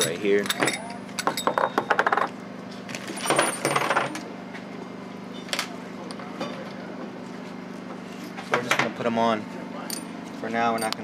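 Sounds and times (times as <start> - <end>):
metal parts clinking on wood: 10.7 - 11.0.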